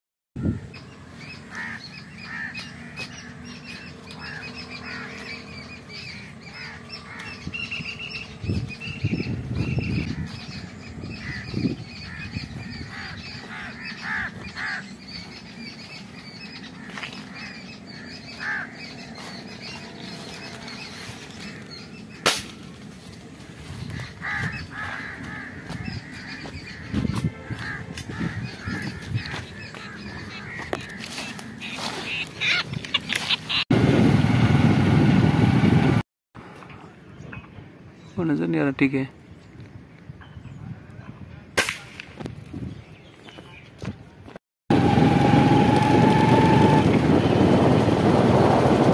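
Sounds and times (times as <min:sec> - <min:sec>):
birds chirping: 0:00.4 - 0:33.7, 0:42.4 - 0:48.9
sharp crack: 0:22.2 - 0:22.7, 0:41.6 - 0:42.3.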